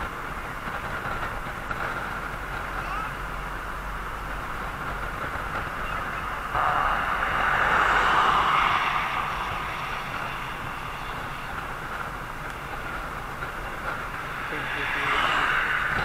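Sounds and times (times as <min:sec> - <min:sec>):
road and wind noise: 0:00.0 - 0:16.0
vehicle passing close by: 0:04.8 - 0:16.0.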